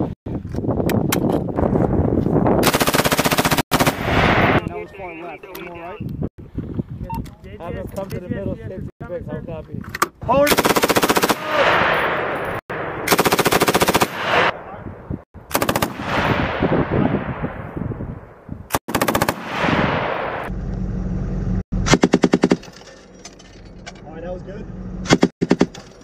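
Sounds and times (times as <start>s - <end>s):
rapid machine gun shots: 2.6s - 4.2s, 10.5s - 11.5s, 13.1s - 14.5s, 15.5s - 16.2s, 18.8s - 19.5s
gunfire echo: 10.6s - 14.7s, 15.5s - 17.8s, 18.8s - 20.5s
low engine hum: 20.5s - 21.6s.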